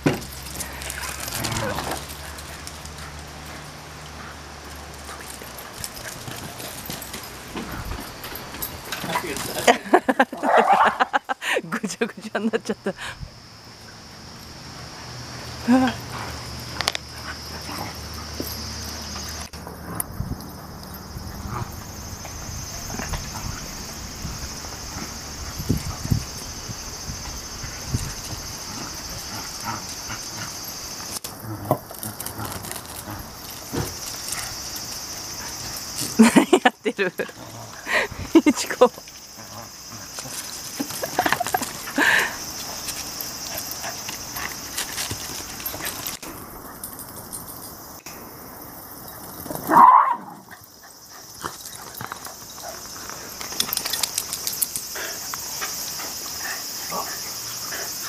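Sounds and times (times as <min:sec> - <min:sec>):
insects chirring: 0:00.0 - 0:58.0
paws ticking on concrete: 0:00.2 - 0:09.9, 0:27.2 - 0:36.4, 0:37.2 - 0:48.1, 0:50.4 - 0:58.0
dog barking: 0:10.4 - 0:11.0, 0:49.7 - 0:50.4.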